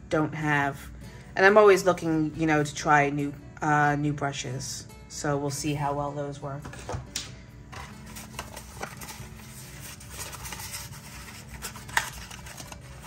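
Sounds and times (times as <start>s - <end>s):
packaging clicks and rustles: 7.7s - 13.0s.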